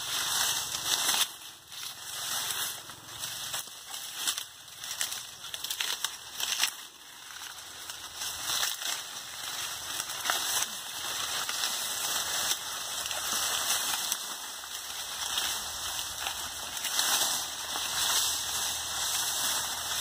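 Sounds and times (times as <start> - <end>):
dry leaves rustling and snapping: 0.0 - 20.0.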